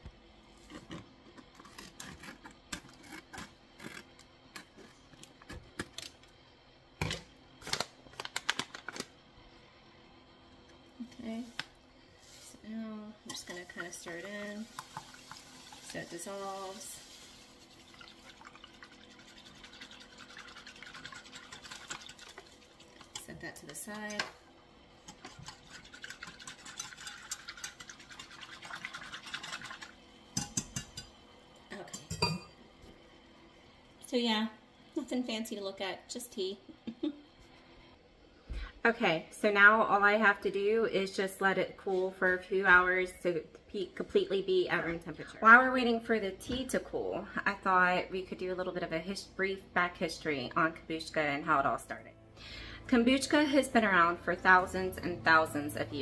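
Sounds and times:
paper pouch crinkling: 7.6s - 9.1s
whisk swishing in metal pan: 13.3s - 22.9s, 25.0s - 29.9s.

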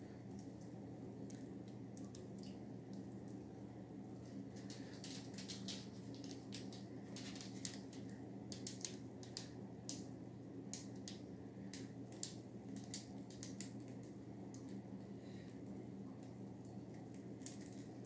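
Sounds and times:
low steady hum: 0.0s - 18.0s
light ticks and crackles: 4.1s - 10.1s, 10.7s - 14.8s, 15.5s - 18.0s.

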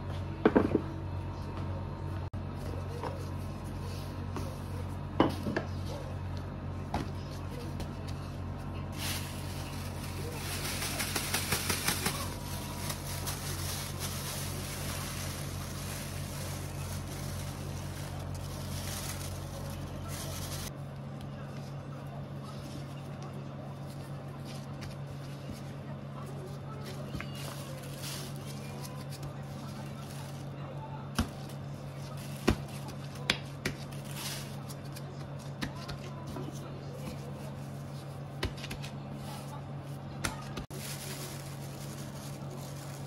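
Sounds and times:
steady low hum: 0.0s - 43.0s
plastic bag rustling: 7.2s - 20.8s, 22.4s - 30.6s, 31.3s - 35.1s, 40.6s - 43.0s.

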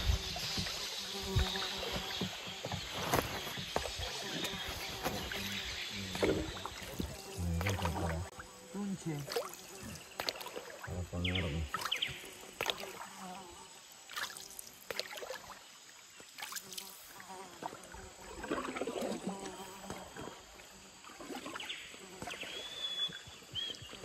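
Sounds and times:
paddle splashing in water: 0.0s - 8.4s, 9.2s - 10.9s, 17.6s - 19.3s.

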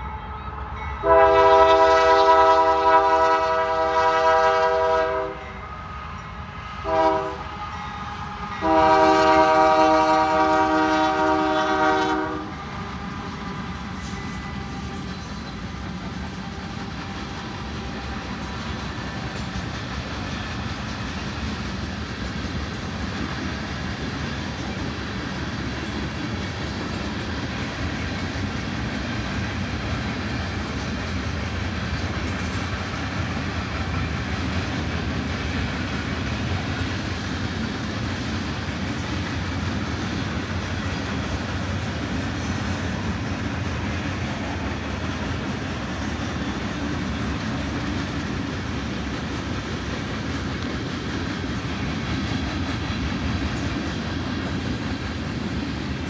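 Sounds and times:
freight train wheels rolling on rail: 0.0s - 56.0s.

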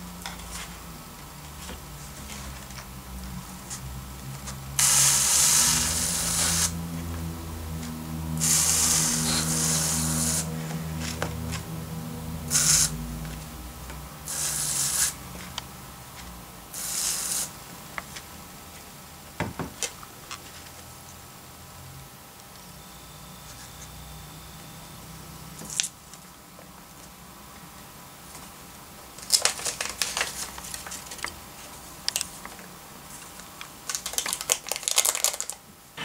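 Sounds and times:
pressure sprayer misting water: 4.8s - 6.8s, 8.4s - 10.6s, 12.5s - 13.0s, 14.3s - 15.2s, 16.8s - 17.5s.

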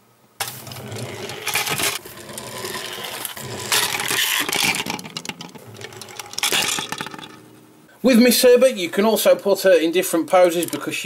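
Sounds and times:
spring motors whirring: 0.4s - 7.4s
toy wheels scraping on table: 0.4s - 7.6s.

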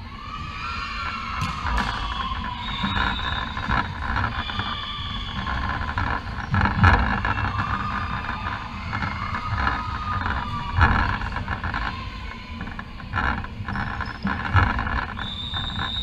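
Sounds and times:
sports hall background din: 0.0s - 16.0s
volleyball hits: 1.3s - 3.0s
shoe squeaks on hardwood: 1.4s - 7.7s, 13.2s - 16.0s.

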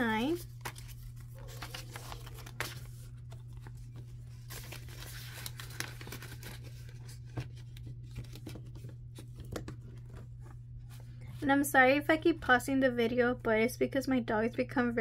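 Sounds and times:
plastic and paper rustling: 0.1s - 11.2s.

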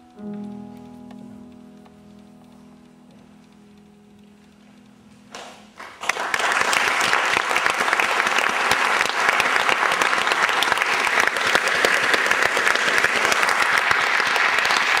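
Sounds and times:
audience applauding: 5.4s - 15.0s.

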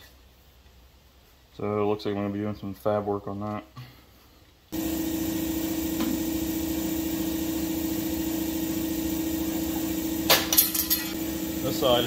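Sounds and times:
motor droning: 4.8s - 10.5s, 11.2s - 12.0s.

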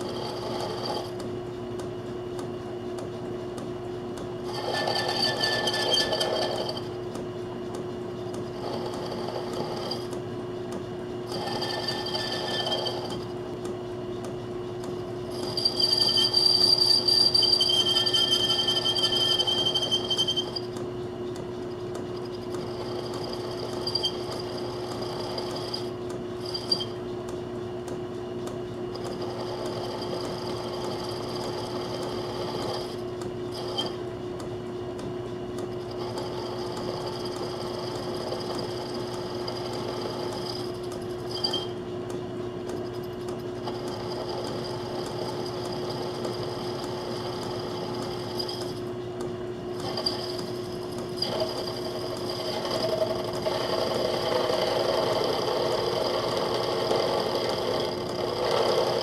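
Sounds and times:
lathe humming: 0.0s - 1.3s, 4.4s - 7.0s, 8.4s - 10.2s, 11.2s - 13.5s, 15.2s - 20.8s, 22.4s - 27.0s, 29.0s - 34.0s, 35.8s - 41.8s, 43.6s - 48.9s, 49.7s - 59.0s
high-pitched metal cutting: 11.3s - 13.3s, 15.3s - 20.6s.

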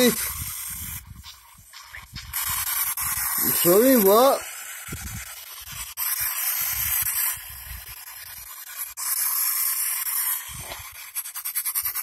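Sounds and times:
radio white-noise static: 0.0s - 0.3s.

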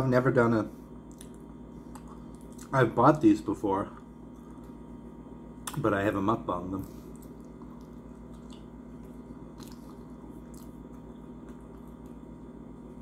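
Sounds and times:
steady low hum: 0.0s - 13.0s
person chewing food: 1.0s - 2.7s, 6.8s - 13.0s.

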